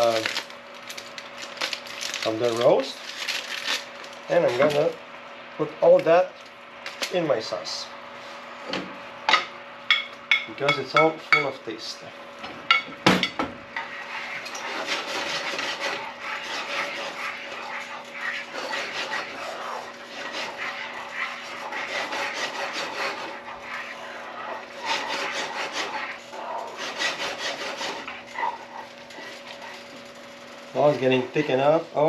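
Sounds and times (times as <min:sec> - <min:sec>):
wooden spatula scraping metal pan: 0:13.8 - 0:29.9.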